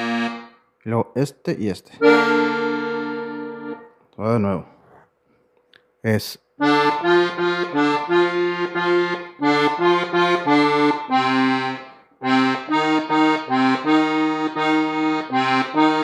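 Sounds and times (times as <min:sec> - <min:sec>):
button accordion notes: 0:00.0 - 0:00.6, 0:02.0 - 0:04.0, 0:06.6 - 0:16.0.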